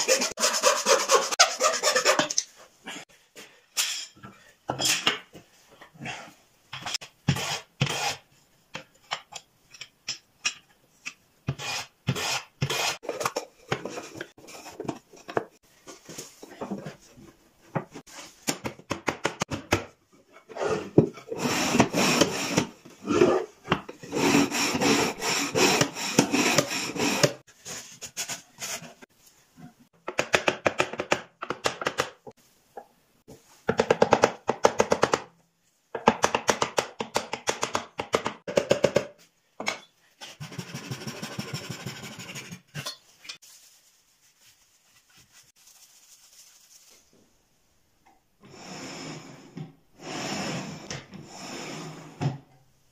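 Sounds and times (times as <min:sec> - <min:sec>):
hand plane shaving wood: 0:00.0 - 0:02.2, 0:24.1 - 0:27.4
rasping on wood: 0:00.0 - 0:02.3, 0:24.1 - 0:27.4.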